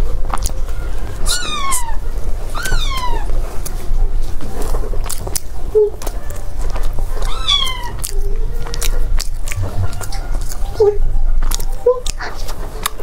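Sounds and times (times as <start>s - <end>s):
cat meowing: 1.2s - 3.3s, 7.2s - 8.2s
chewing clicks: 5.0s - 10.8s, 11.4s - 13.0s.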